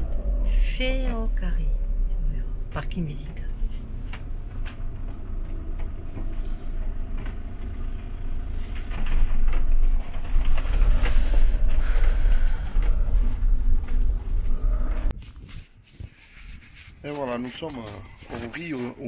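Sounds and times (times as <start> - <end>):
road noise: 0.0 - 15.2, 16.1 - 19.0
van engine: 0.0 - 15.2.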